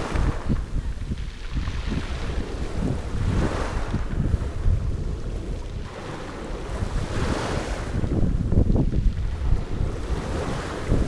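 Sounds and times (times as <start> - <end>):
waves washing over pebbles: 0.0 - 11.0
wind buffeting microphone: 0.0 - 11.0.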